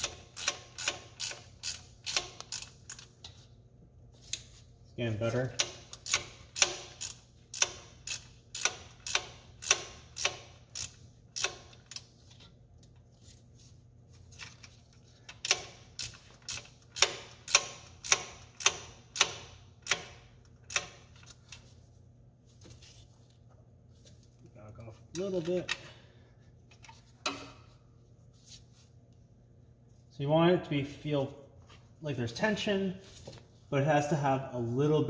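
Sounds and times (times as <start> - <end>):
ratchet wrench clicking: 0.0 - 3.1, 5.6 - 12.1, 15.3 - 21.2.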